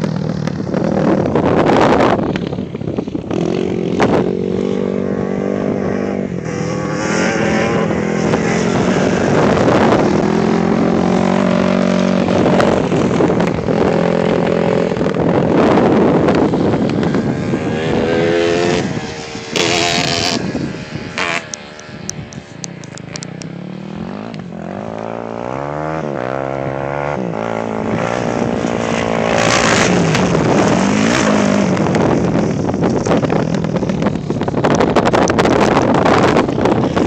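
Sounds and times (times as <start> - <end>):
dirt bike engine revving: 3.3 - 22.2, 23.4 - 33.4.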